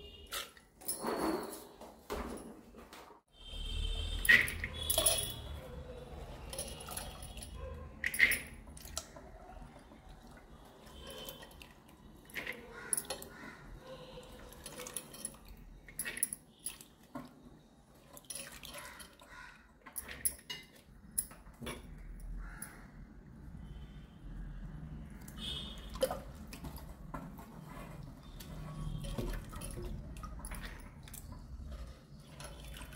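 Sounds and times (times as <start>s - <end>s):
bangles clinking: 3.5s - 8.6s.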